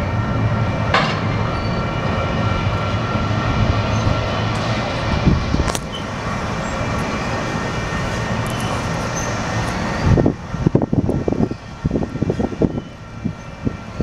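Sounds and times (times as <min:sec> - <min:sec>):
freight train wheels rumbling on rail: 0:00.0 - 0:14.0.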